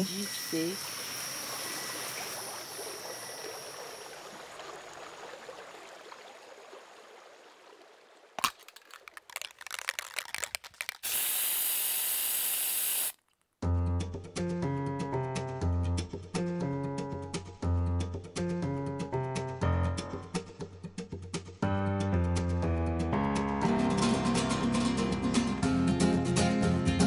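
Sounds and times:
spray paint can rattling: 8.4 - 13.3
spray can hissing: 9.0 - 13.2
music with plucked notes and bass: 21.6 - 27.0.

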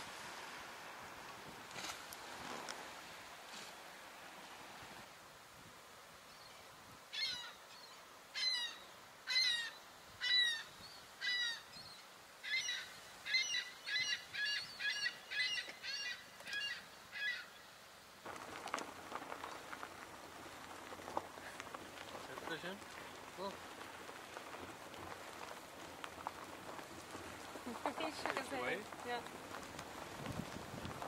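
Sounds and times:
rough rustling: 0.0 - 5.0, 18.2 - 31.0.

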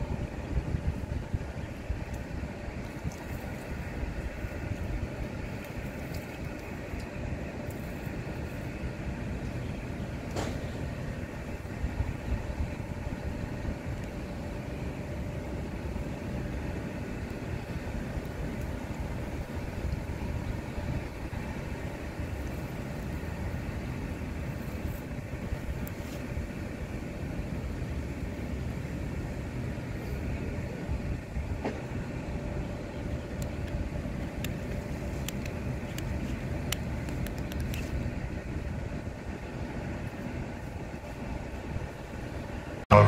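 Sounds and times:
low rumbling background noise: 0.0 - 43.0.

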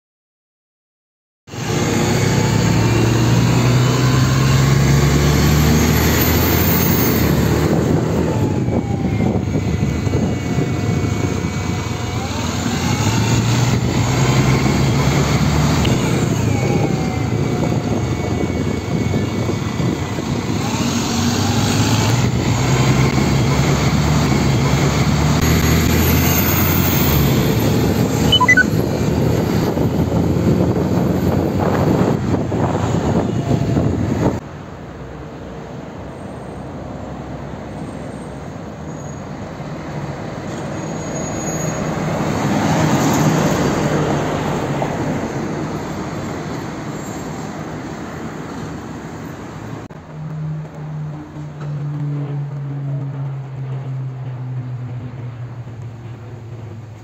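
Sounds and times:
bus diesel engine accelerating: 1.5 - 57.0
high whine: 28.1 - 28.9
brief high squeak: 28.2 - 28.8, 40.6 - 42.0.

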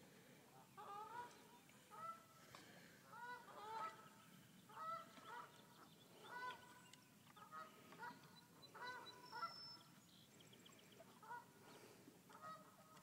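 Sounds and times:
geese honking: 0.8 - 2.3, 3.1 - 4.1, 4.8 - 6.8, 7.4 - 9.6, 11.0 - 11.6, 12.3 - 13.0.

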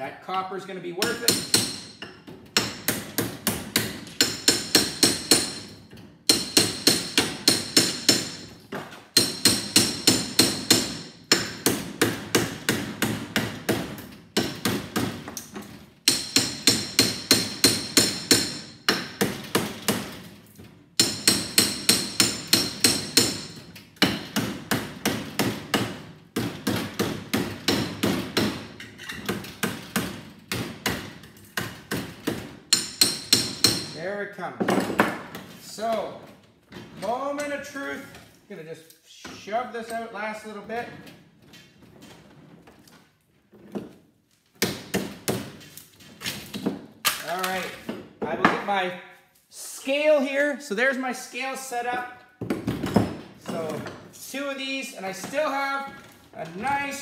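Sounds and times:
hammer striking steel bar: 1.0 - 5.7, 6.3 - 8.5, 9.2 - 12.5, 16.1 - 19.3, 21.0 - 24.3, 32.7 - 34.0.

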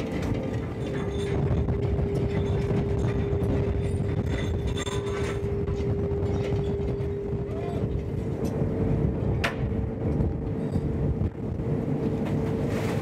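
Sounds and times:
winch whining: 0.0 - 9.3
low constant rumble: 0.0 - 13.0.

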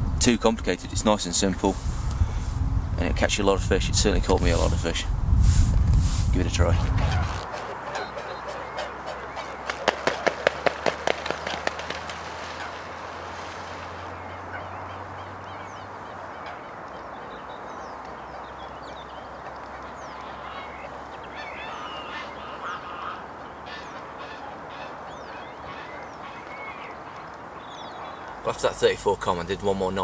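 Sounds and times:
outdoor background noise: 0.0 - 30.0
small birds chirping: 4.0 - 30.0
waterfowl honking: 6.6 - 28.5.

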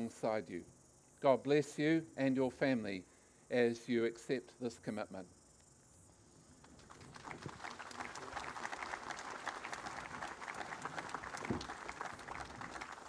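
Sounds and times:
crowd applauding: 6.7 - 13.0.

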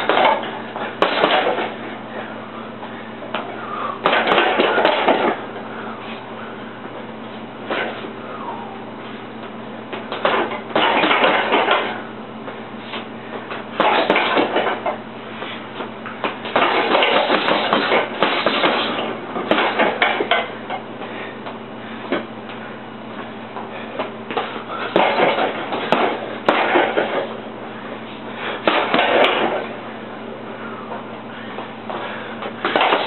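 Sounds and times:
boxing gloves punching heavy bag: 0.0 - 1.8, 4.0 - 5.4, 10.1 - 12.0, 13.7 - 14.9, 16.2 - 20.5, 23.9 - 27.4, 28.6 - 29.7, 32.6 - 33.0.

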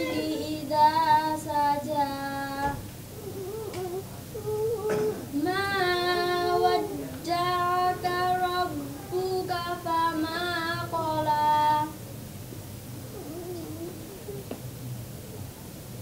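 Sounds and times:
girl singing solo: 0.0 - 2.8, 4.8 - 12.0.

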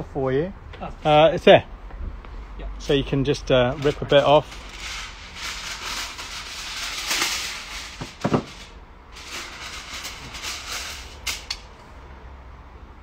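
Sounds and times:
aluminium foil crinkling: 3.7 - 11.5.

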